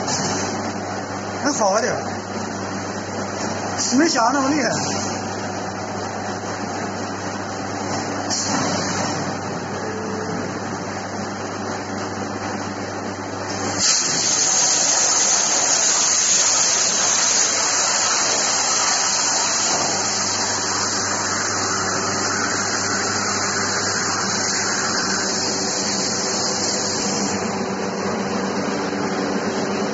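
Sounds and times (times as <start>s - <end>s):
plasma cutting machine humming: 0.0s - 12.0s, 13.4s - 29.9s
plasma torch hissing through metal: 8.3s - 9.2s, 13.6s - 27.5s.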